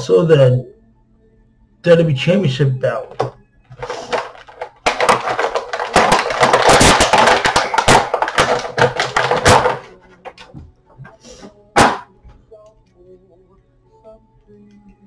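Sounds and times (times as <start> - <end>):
toy packaging crinkling: 3.8 - 10.4.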